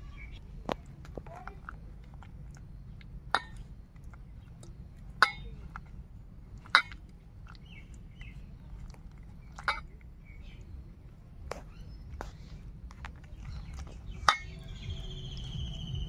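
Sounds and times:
clinks against steel bowl: 3.3 - 3.7, 5.2 - 5.6, 6.6 - 7.0, 14.2 - 14.6.

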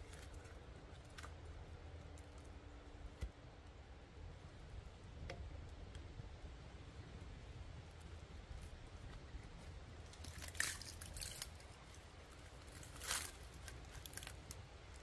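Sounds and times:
firewood cracking and splintering: 7.9 - 15.0.

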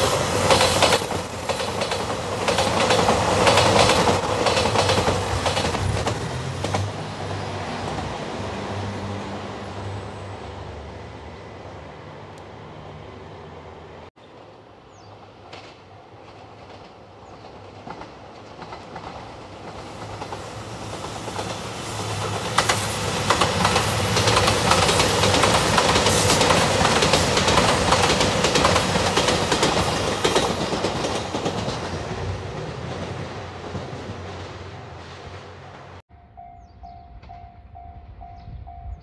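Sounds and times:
wheels clicking over rail joints: 0.0 - 7.0, 15.4 - 34.4
diesel train engine: 0.0 - 39.0.

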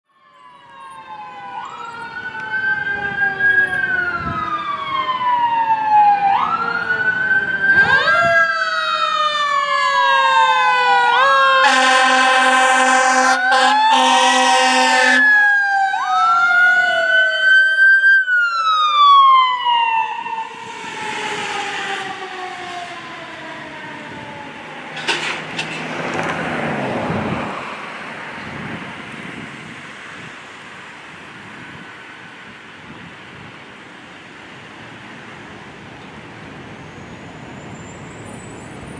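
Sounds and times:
traffic noise: 0.1 - 38.9
wailing sirens: 0.1 - 38.9
fire engine air horns: 11.5 - 15.5, 20.4 - 22.3.

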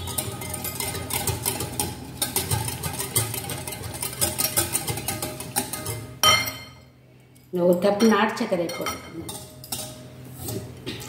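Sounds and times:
whisk clicking against glass bowl: 0.0 - 6.2.

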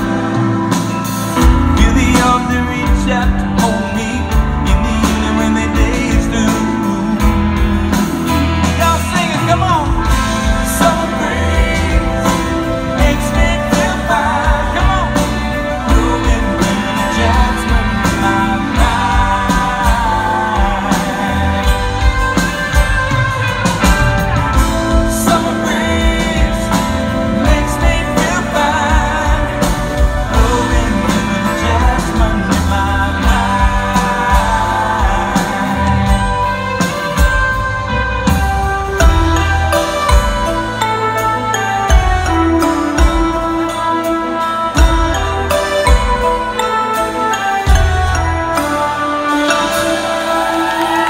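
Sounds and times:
man singing: 0.0 - 23.4, 24.5 - 37.5
bass: 0.0 - 51.0
drums: 0.0 - 51.0.

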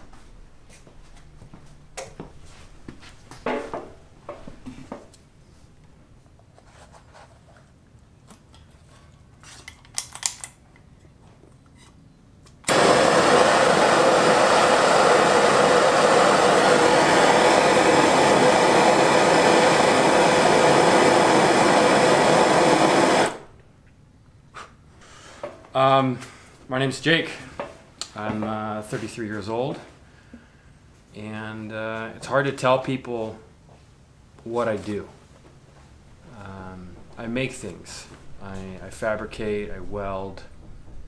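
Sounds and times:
gas torch flame hiss: 12.7 - 23.5.

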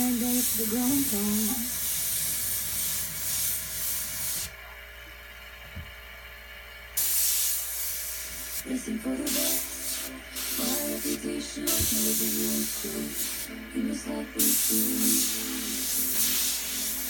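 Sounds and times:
airbrush air hiss: 0.0 - 4.6, 7.0 - 13.6, 14.3 - 17.0.

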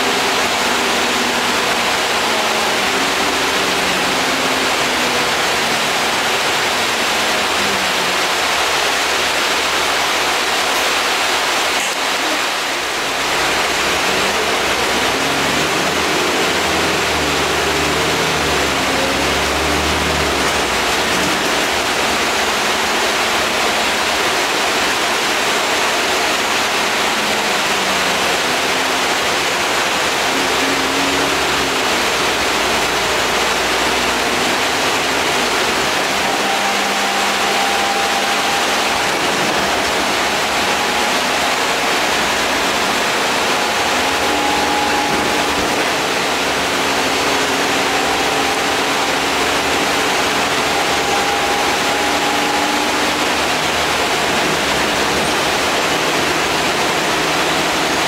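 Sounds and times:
bus engine hum: 0.0 - 58.0.

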